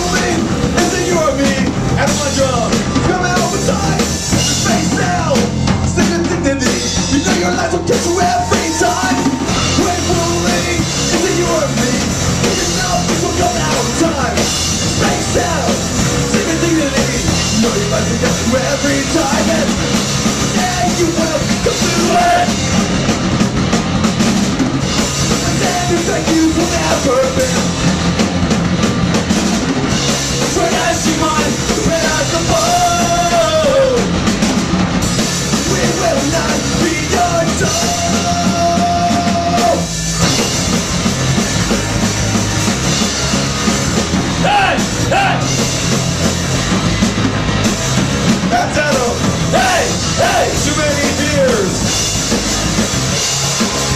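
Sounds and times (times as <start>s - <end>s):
punk rock band playing: 0.0s - 53.9s
shouted sung vocals: 6.2s - 14.4s, 20.5s - 22.6s, 30.4s - 34.1s, 35.6s - 39.9s, 44.4s - 45.6s, 48.5s - 51.8s.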